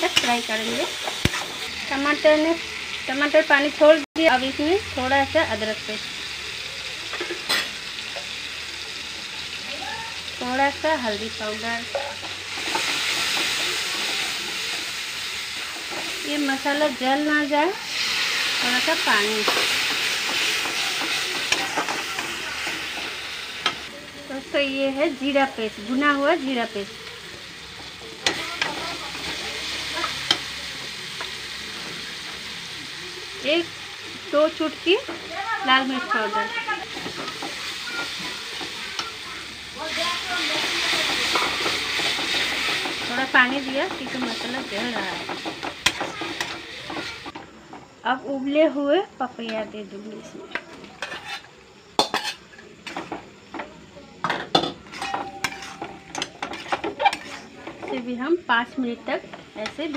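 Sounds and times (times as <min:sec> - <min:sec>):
masala sizzling: 0:00.0 - 0:59.9
metal spoon scraping a pan: 0:11.5 - 0:14.9, 0:17.8 - 0:23.9, 0:39.8 - 0:47.2, 0:51.0 - 0:53.2, 0:54.5 - 0:58.0
spatula scraping metal pot: 0:51.0 - 0:53.0, 0:54.6 - 0:58.0.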